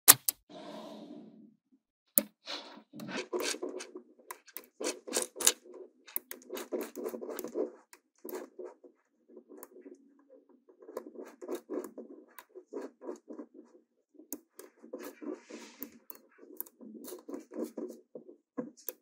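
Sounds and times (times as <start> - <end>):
magnetic balls scraping: 2.2 - 19.0
magnetic balls clicking: 3.2 - 10.0.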